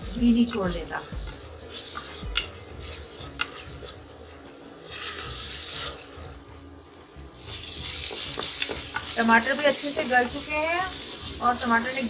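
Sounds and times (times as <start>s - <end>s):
wooden spatula scraping a pot: 0.0s - 6.4s
tomatoes sizzling in a pot: 0.0s - 12.0s.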